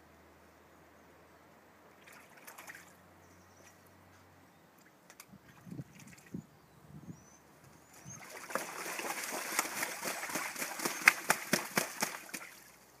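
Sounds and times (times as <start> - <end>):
goose splashing in water: 1.9 - 3.0, 8.0 - 12.8.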